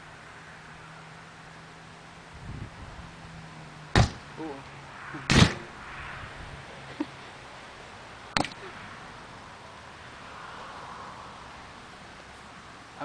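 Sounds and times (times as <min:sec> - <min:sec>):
lighters bursting with bangs: 0:05.3 - 0:06.2.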